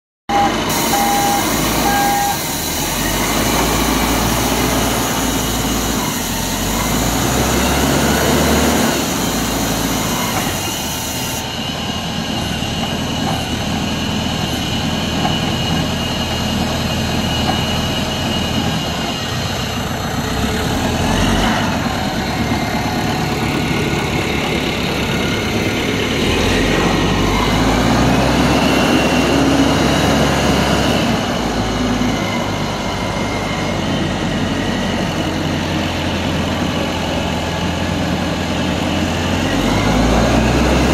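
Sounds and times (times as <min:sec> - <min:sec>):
short beeps: 0:00.3 - 0:02.6
diesel engine running: 0:00.3 - 0:40.9.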